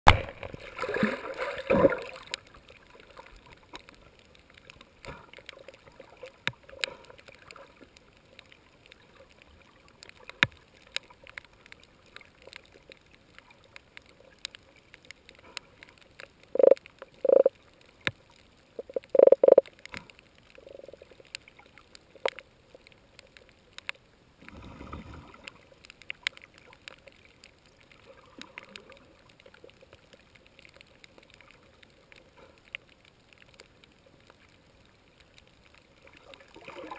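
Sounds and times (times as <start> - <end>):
sharp clicks: 16.6 - 17.5, 18.8 - 19.7
short low bursts: 16.6 - 17.5, 18.8 - 19.6.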